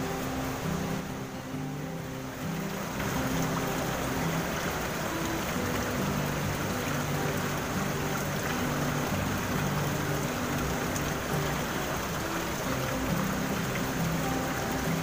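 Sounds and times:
background music: 0:00.0 - 0:15.0
river water flowing over rocks: 0:00.0 - 0:15.0.

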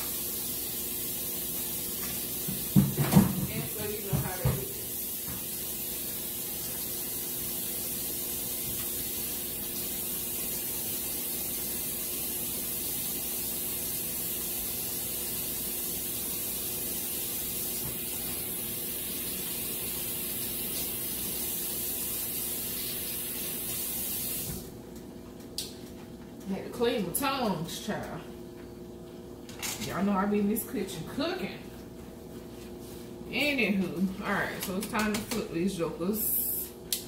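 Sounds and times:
water boiling hard hiss: 0:00.0 - 0:24.7.

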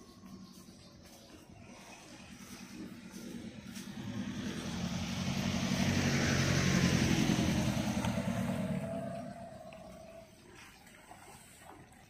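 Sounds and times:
vehicle driving past: 0:01.6 - 0:10.4.

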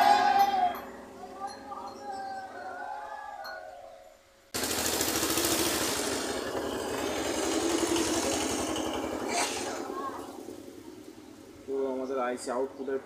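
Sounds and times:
small engine running: 0:04.6 - 0:11.6.

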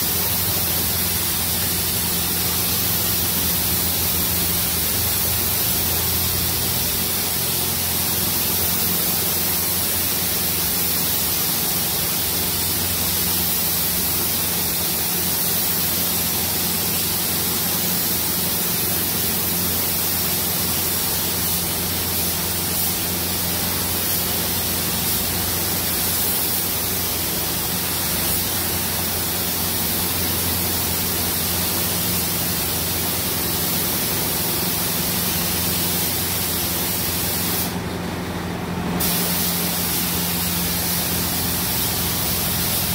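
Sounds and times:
paint spray gun hissing: 0:00.0 - 0:37.8, 0:39.0 - 0:42.9.

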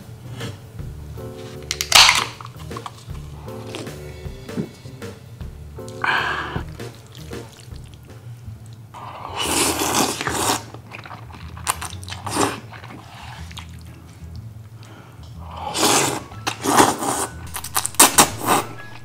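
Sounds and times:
chewing: 0:01.4 - 0:04.9, 0:05.8 - 0:19.0
person slurping noodles: 0:05.9 - 0:07.9, 0:09.0 - 0:13.8, 0:15.4 - 0:17.4, 0:18.0 - 0:18.8.

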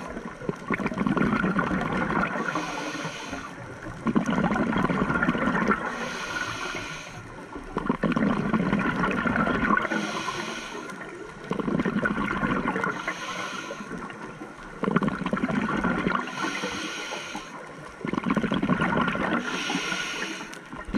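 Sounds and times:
gush of exhaled bubbles: 0:00.0 - 0:02.6, 0:03.9 - 0:06.5, 0:07.7 - 0:10.3, 0:11.0 - 0:13.3, 0:14.7 - 0:16.6, 0:18.0 - 0:20.9
regulator inhale hiss: 0:02.3 - 0:03.6, 0:05.8 - 0:07.4, 0:09.8 - 0:11.1, 0:12.8 - 0:14.2, 0:16.1 - 0:17.9, 0:19.4 - 0:20.8.

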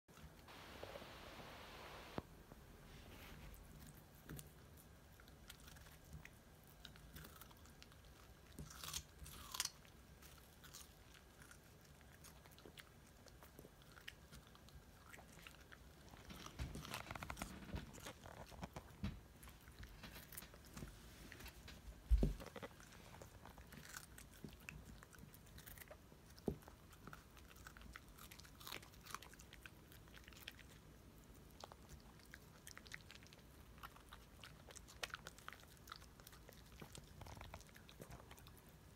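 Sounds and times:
dog crunching radish: 0:03.5 - 0:38.9.

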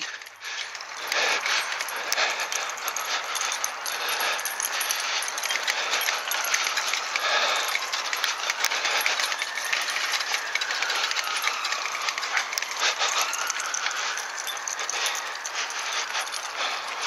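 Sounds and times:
bicycle rattling and clicking: 0:00.0 - 0:17.0
tyres hissing on wet tarmac: 0:00.0 - 0:17.0.

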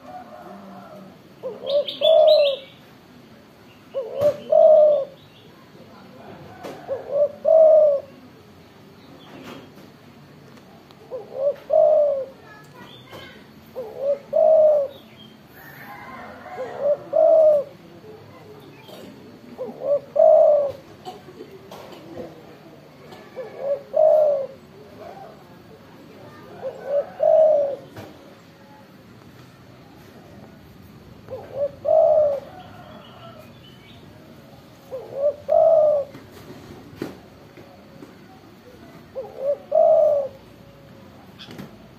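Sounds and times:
dove cooing: 0:00.0 - 0:02.8, 0:03.9 - 0:05.2, 0:06.2 - 0:08.3, 0:11.0 - 0:12.4, 0:13.7 - 0:17.8, 0:19.2 - 0:22.0, 0:23.0 - 0:25.4, 0:26.3 - 0:28.2, 0:31.2 - 0:33.4, 0:34.8 - 0:36.6, 0:39.1 - 0:40.8.

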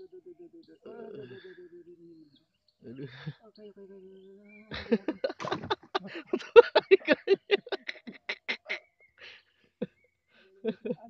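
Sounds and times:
man laughing: 0:04.7 - 0:08.8, 0:10.6 - 0:11.0.

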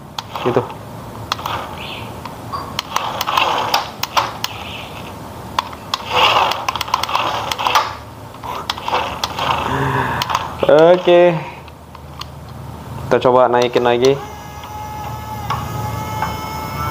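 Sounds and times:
sharp clicks: 0:00.1 - 0:12.6, 0:13.6 - 0:15.7
toy truck motor whirring: 0:02.8 - 0:05.2, 0:05.9 - 0:10.4, 0:13.6 - 0:16.9.

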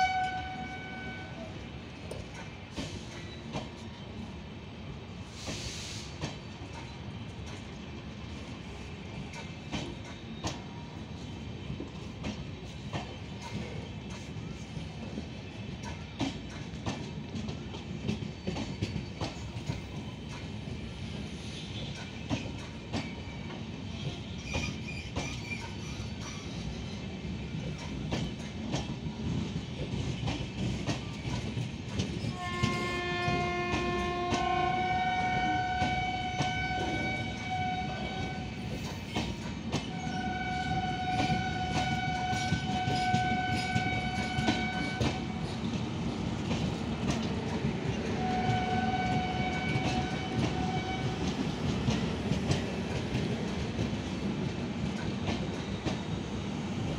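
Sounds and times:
train horn blasts: 0:00.0 - 0:01.5, 0:32.3 - 0:38.8, 0:39.9 - 0:45.4, 0:48.1 - 0:51.4
train coaches rolling past: 0:00.0 - 0:56.9.

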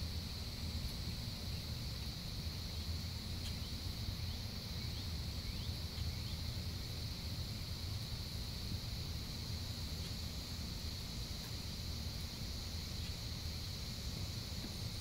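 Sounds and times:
insect trill: 0:00.0 - 0:15.0.

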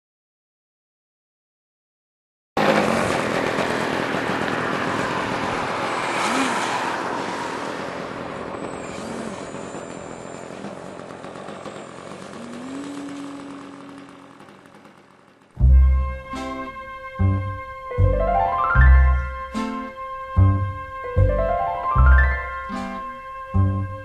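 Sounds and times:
model airplane motor and propeller: 0:12.0 - 0:15.4.

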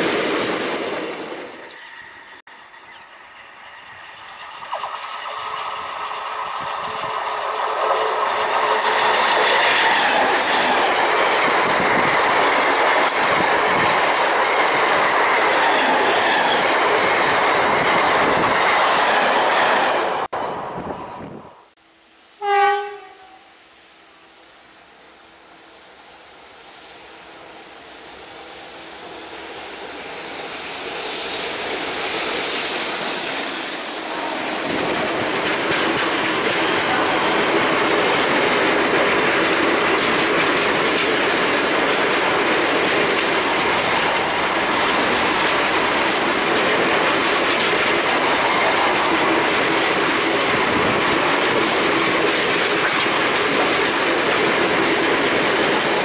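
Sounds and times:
freight train passing: 0:00.0 - 0:56.0
wheels clattering over rail joints: 0:34.7 - 0:56.0.

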